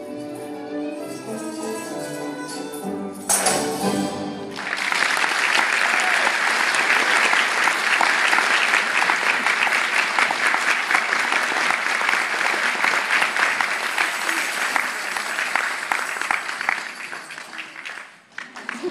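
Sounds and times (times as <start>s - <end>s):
theatre audience applauding: 4.4s - 18.9s.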